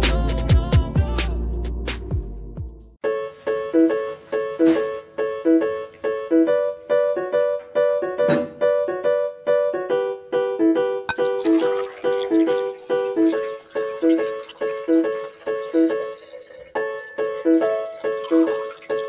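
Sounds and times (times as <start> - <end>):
upbeat keyboard melody: 0.0 - 16.2.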